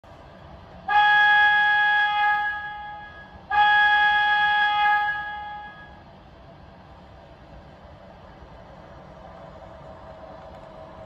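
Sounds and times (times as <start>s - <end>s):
train horn chord: 0.9s - 6.0s.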